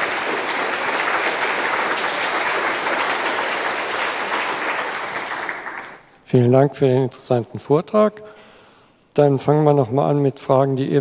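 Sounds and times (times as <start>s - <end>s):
audience applauding: 0.0s - 6.2s.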